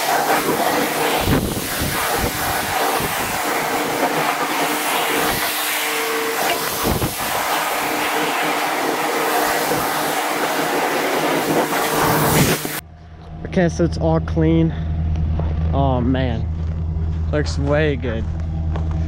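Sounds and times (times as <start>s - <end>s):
pressure washer spraying on metal: 0.0s - 12.8s.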